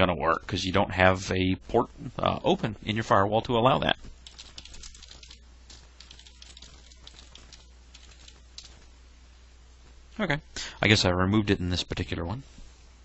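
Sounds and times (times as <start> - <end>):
computer keyboard keystrokes: 4.2 - 8.8.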